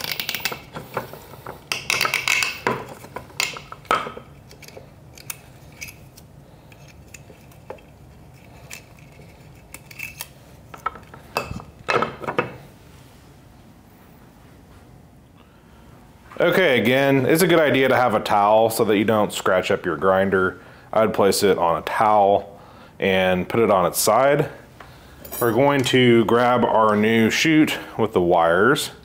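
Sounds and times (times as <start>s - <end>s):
wires and connectors rattling: 0.0s - 12.6s.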